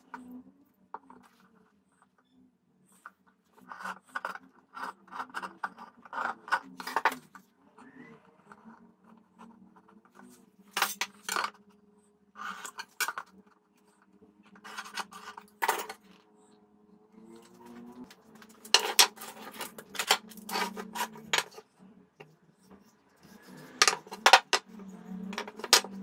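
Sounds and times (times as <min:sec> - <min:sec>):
metal tools clinking and scraping: 0:14.6 - 0:16.1, 0:18.3 - 0:21.6, 0:23.7 - 0:26.0.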